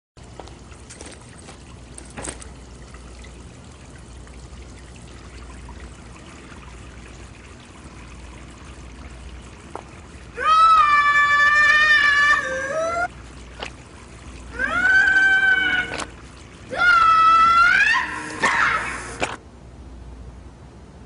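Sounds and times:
tap trickling into sink: 0:09.6 - 0:10.0.

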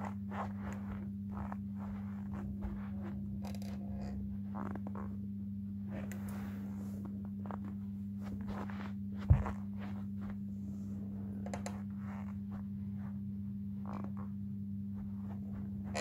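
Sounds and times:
shoe scuffing on carpet: 0:00.0 - 0:03.5, 0:05.9 - 0:11.0, 0:12.0 - 0:13.3, 0:15.0 - 0:16.0
steady low hum: 0:00.0 - 0:16.0.

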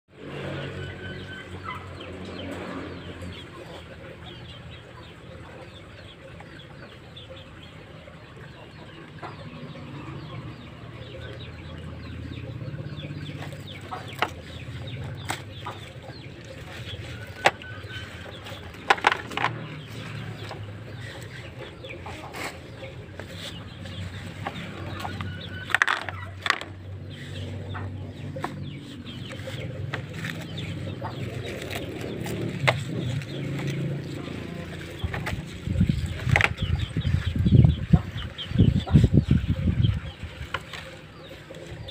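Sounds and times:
lettuce leaves rustling: 0:13.3 - 0:38.4
sharp clicks and knocks: 0:17.3 - 0:20.7.

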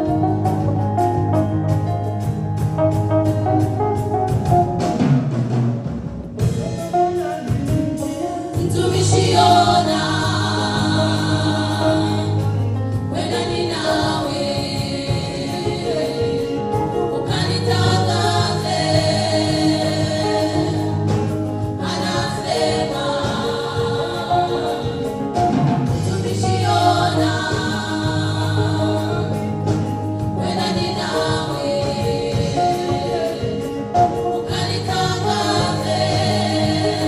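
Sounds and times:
electric guitar: 0:00.0 - 0:37.0
keyboard: 0:00.0 - 0:37.0
women's choir singing: 0:08.4 - 0:37.0.

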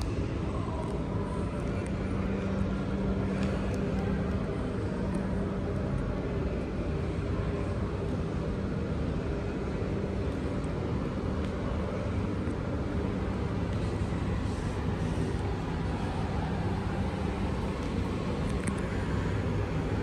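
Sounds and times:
low hum: 0:00.0 - 0:20.0
railway platform rumble: 0:00.0 - 0:20.0.

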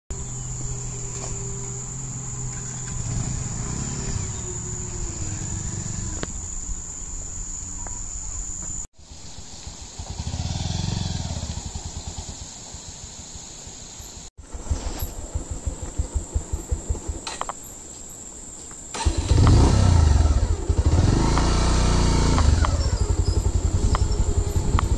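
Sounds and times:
motorcycle engine running: 0:00.1 - 0:06.4, 0:09.0 - 0:13.4, 0:14.1 - 0:17.9, 0:19.0 - 0:24.9
crickets droning: 0:00.1 - 0:24.9.

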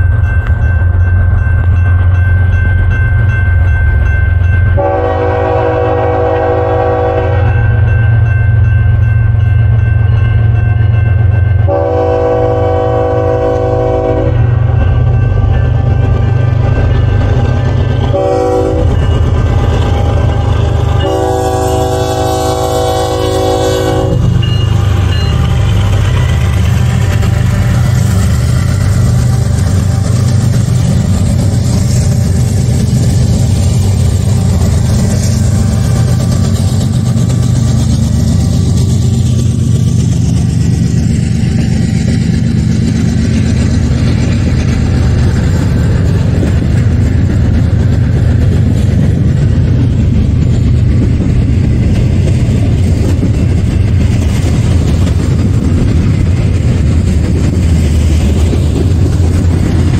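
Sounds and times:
freight train rumbling on rails: 0:00.0 - 0:59.9
train air horn: 0:04.8 - 0:07.7, 0:11.7 - 0:14.4, 0:18.1 - 0:19.0, 0:20.8 - 0:24.3.

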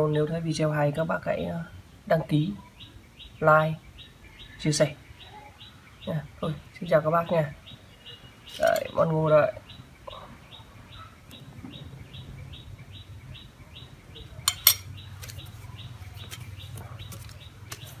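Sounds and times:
spoon clinking on ceramic plate: 0:14.5 - 0:14.9.

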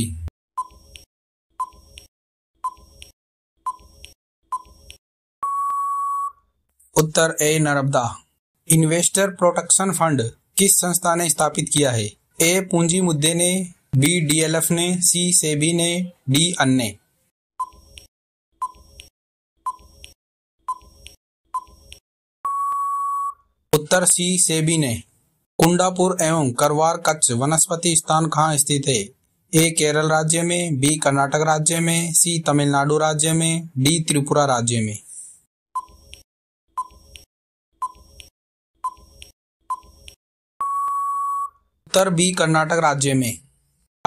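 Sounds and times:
long steady beep: 0:05.4 - 0:06.4, 0:22.4 - 0:23.4, 0:40.6 - 0:41.6
short electronic beeps: 0:05.4 - 0:06.4, 0:22.4 - 0:23.4, 0:37.8 - 0:38.2, 0:39.7 - 0:39.9, 0:40.6 - 0:41.6.

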